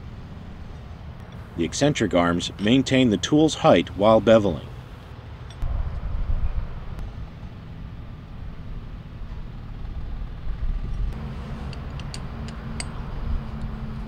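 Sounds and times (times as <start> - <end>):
low machinery rumble: 0.0 - 14.0
steady hum: 0.0 - 14.0.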